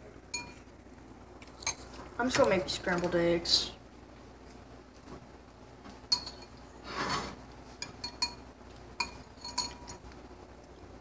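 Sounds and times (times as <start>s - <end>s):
cutlery clinking against dishes: 6.1s - 6.6s, 7.8s - 8.4s, 9.0s - 10.0s
cutlery scraping: 6.1s - 8.4s, 9.0s - 10.0s.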